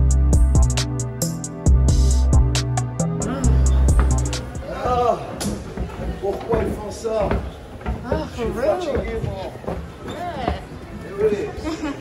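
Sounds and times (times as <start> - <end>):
deep bass notes: 0.0 - 4.7.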